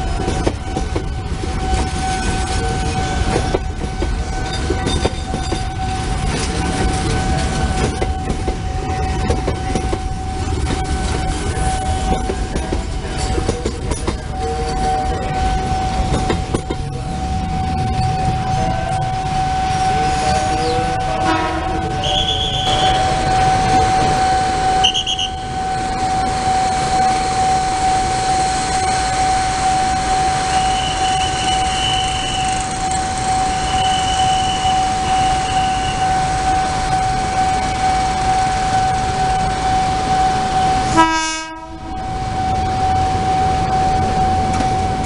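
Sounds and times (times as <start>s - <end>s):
train rumbling on rails: 0.0s - 45.0s
train horn blast: 18.6s - 25.6s, 38.3s - 42.1s.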